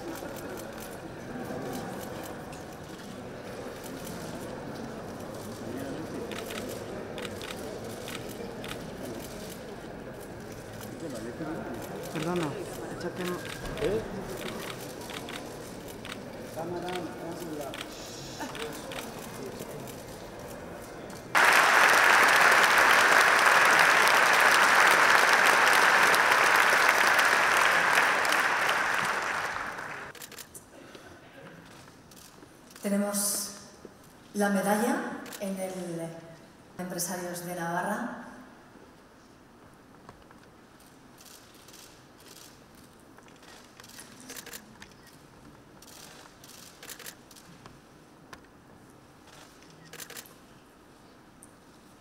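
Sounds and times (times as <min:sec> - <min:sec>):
audience applauding: 0:21.3 - 0:30.2
camera shutters firing: 0:43.4 - 0:45.1, 0:45.8 - 0:47.5, 0:49.3 - 0:50.3.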